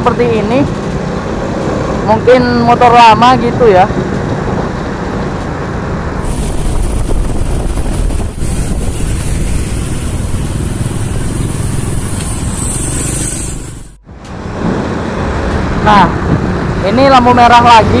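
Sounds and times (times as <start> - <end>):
motorcycle engine: 4.0 - 14.0
wind on microphone: 6.1 - 16.6.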